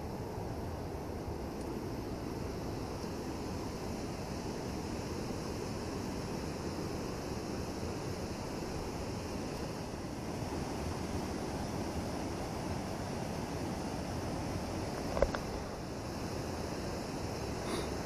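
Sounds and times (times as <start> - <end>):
river water pouring through weir: 0.0 - 18.0.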